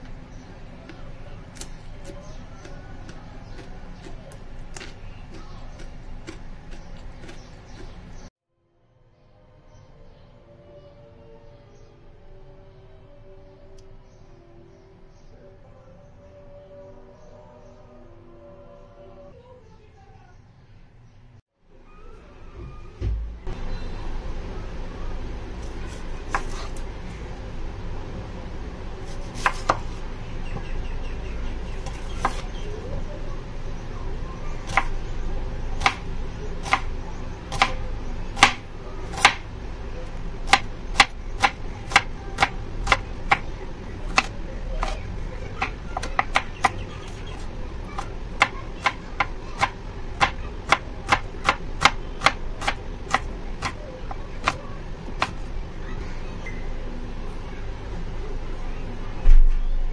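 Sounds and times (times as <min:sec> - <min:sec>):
knife chopping on wooden board: 0:25.9 - 0:26.8, 0:29.1 - 0:30.0, 0:31.8 - 0:32.5, 0:38.4 - 0:39.4, 0:40.5 - 0:43.4, 0:45.6 - 0:47.4, 0:48.4 - 0:53.8.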